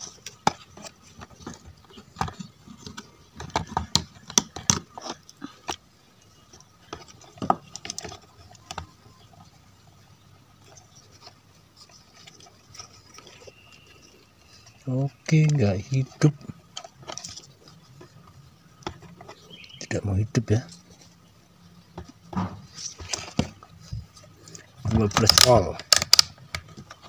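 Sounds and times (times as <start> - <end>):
plastic case handled: 0.0 - 5.8, 6.5 - 9.5, 15.4 - 19.8, 21.8 - 27.0
clicks of wire connectors: 25.1 - 26.9.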